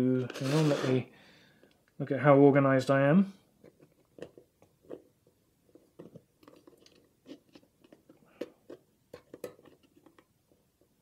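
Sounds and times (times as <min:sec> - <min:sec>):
plastic parts clicking and scraping: 0:03.6 - 0:10.3.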